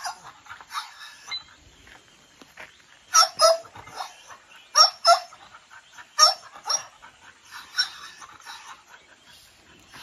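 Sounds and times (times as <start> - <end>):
dog barking: 0.0 - 1.0, 3.1 - 5.5, 6.2 - 7.0, 7.6 - 8.8.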